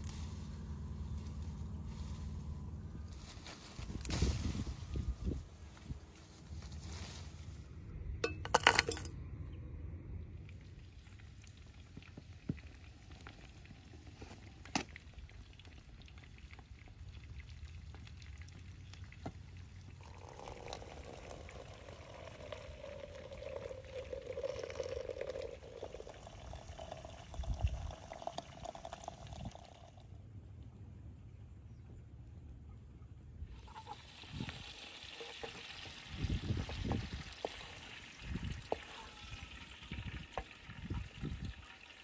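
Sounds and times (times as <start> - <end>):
hot water pouring into teapot: 10.5 - 30.1, 33.5 - 42.0.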